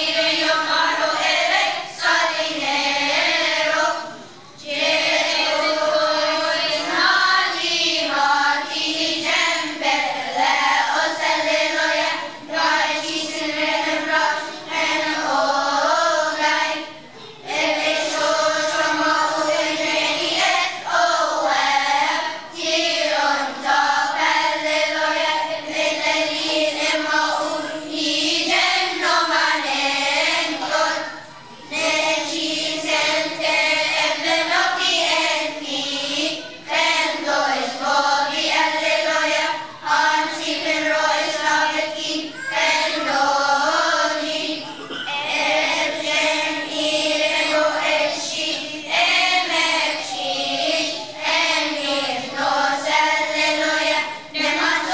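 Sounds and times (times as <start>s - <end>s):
children's choir singing: 0.0s - 54.9s.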